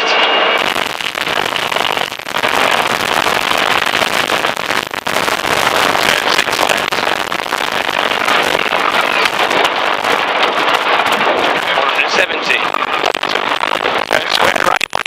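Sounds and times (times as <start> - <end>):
gravel rattling against underbody: 4.4 - 15.0.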